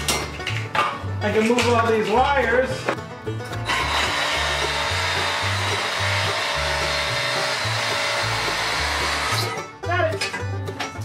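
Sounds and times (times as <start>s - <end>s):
background music with bass line: 0.0s - 11.0s
cordless power tool whirring: 3.7s - 9.5s.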